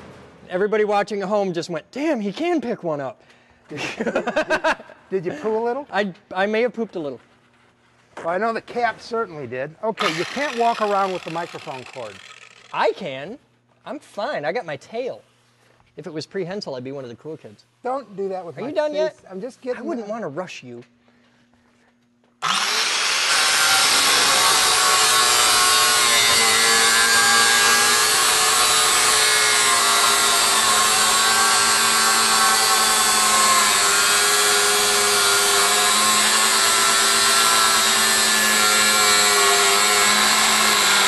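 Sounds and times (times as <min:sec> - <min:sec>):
angle grinder cutting metal: 0:10.0 - 0:12.8, 0:22.4 - 0:41.0.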